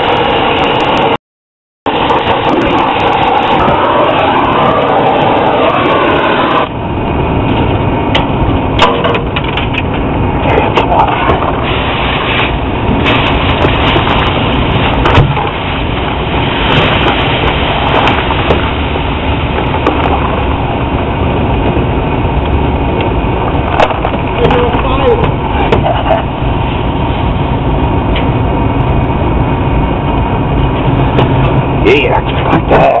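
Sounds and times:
torch flame hissing: 1.9 - 8.7, 10.0 - 28.8
sharp crackles: 7.4 - 33.0.

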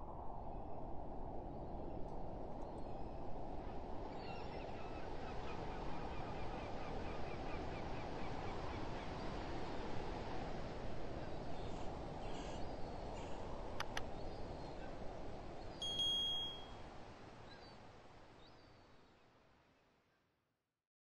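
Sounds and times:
cursor click sound effect: 15.8 - 16.6.

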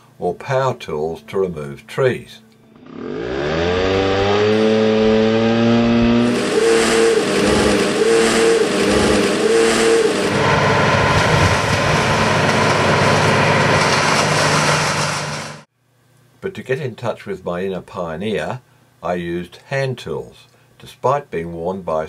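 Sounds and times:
chainsaw engine revving: 2.8 - 15.7
stump grinder engine running: 2.8 - 15.7.

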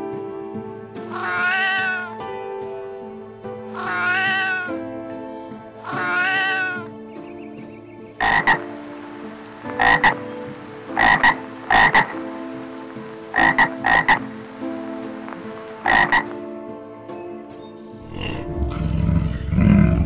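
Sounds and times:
soft background music: 0.0 - 20.0
cat meowing: 1.1 - 2.2, 3.8 - 4.8, 5.9 - 6.9
sharp croaking calls: 1.1 - 2.2, 3.8 - 4.8, 5.8 - 7.4, 8.2 - 8.8, 9.6 - 12.2, 13.3 - 14.3, 15.8 - 16.4, 18.0 - 20.0.

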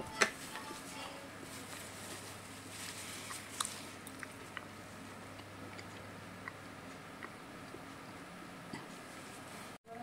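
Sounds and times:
quiet chewing: 3.0 - 8.1.

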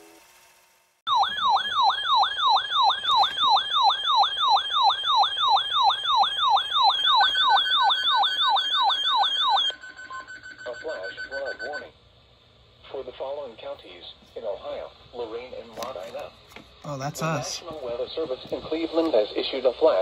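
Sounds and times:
electronic falling siren tone: 0.0 - 11.0.

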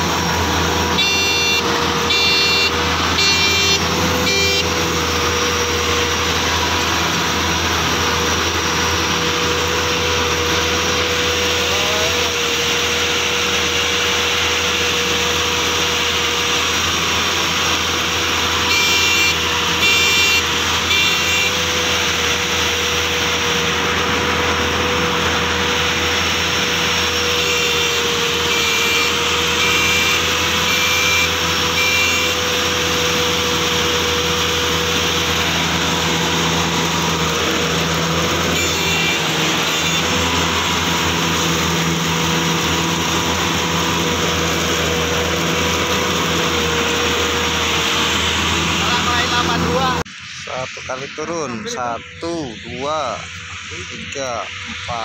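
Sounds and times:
combine harvester running: 0.0 - 55.0
rapid electronic beeps: 1.0 - 4.6, 49.0 - 55.0.

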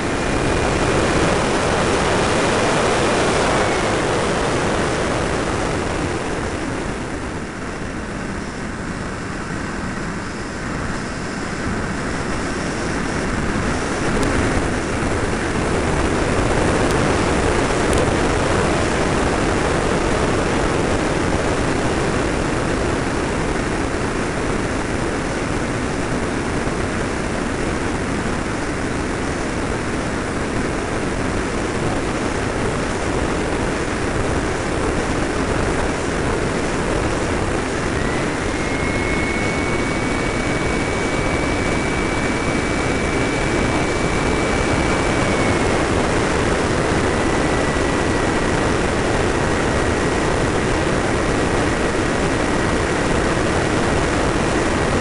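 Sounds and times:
airflow rushing: 0.0 - 55.0
thin high whine: 0.0 - 55.0.

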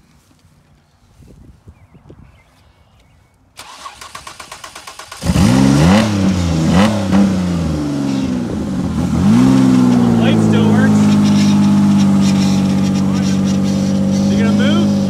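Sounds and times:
engine cranking on starter: 3.6 - 7.4
loud engine revving: 3.6 - 15.0.

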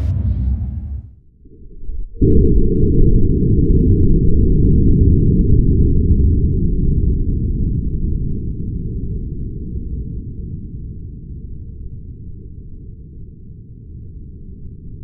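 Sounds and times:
slowed gunshot deep rumble: 0.0 - 1.2.

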